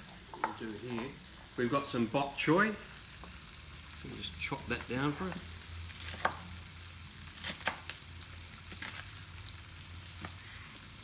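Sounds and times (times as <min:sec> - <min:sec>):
onions sizzling in a wok: 0:00.0 - 0:11.0
knife chopping on wooden board: 0:06.0 - 0:06.5, 0:07.4 - 0:07.9.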